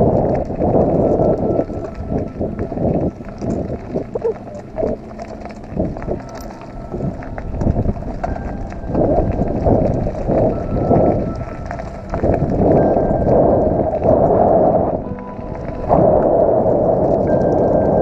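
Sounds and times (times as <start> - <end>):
bike chain and frame rattling: 0.0 - 14.0
bike tyres crunching on gravel: 0.0 - 18.0
wind on microphone: 0.0 - 18.0.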